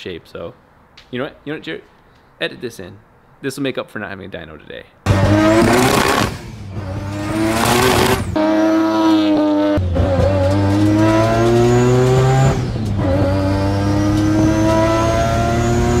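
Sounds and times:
rotary engine revving: 0:05.1 - 0:16.0.

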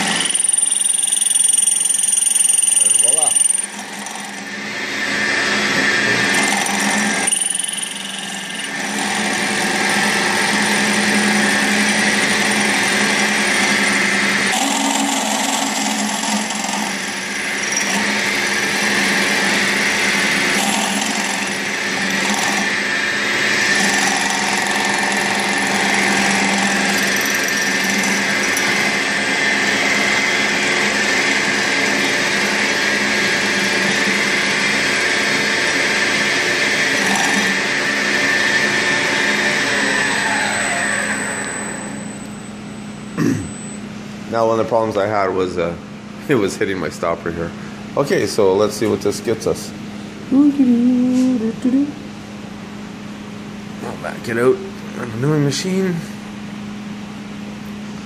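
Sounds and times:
hole saw cutting aluminum tube: 0:00.0 - 0:42.0.

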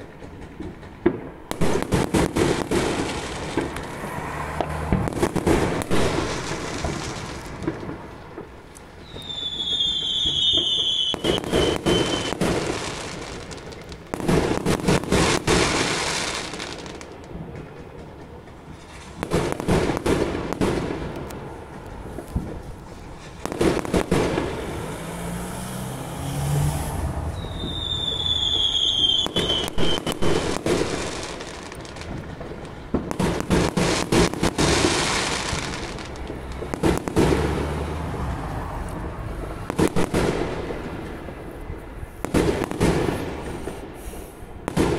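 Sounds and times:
fireworks crackling bangs: 0:00.0 - 0:44.9
whistle falling in pitch: 0:09.0 - 0:12.4, 0:27.3 - 0:30.2.

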